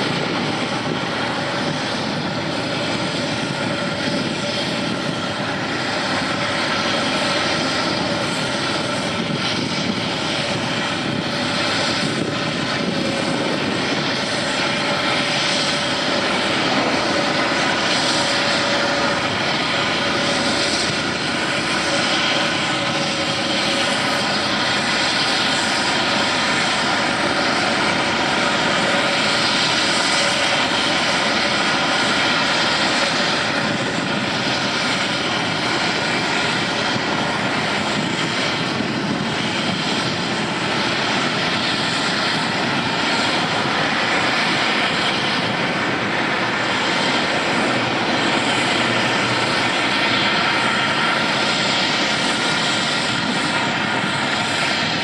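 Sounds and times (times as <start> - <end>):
machinery drone: 0.0 - 55.0.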